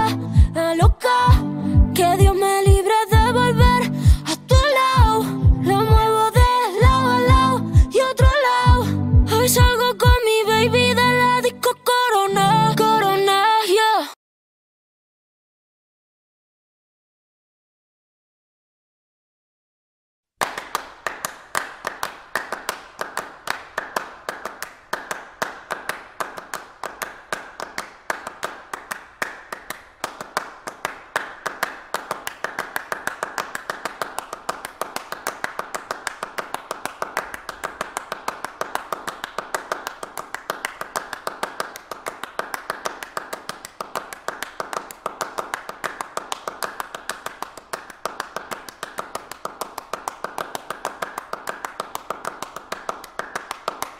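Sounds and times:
group applause: 0:20.4 - 0:53.9.

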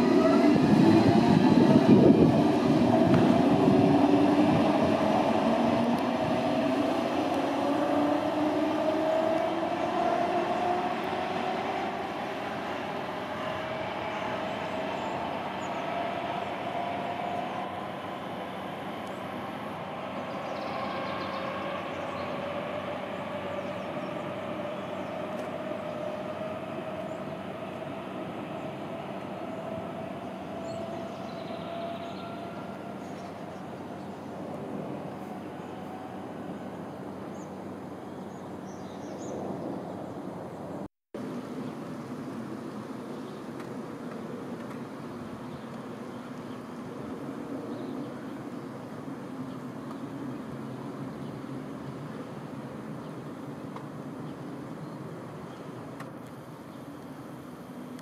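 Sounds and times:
wheels rumbling on rail: 0:00.0 - 0:58.0.

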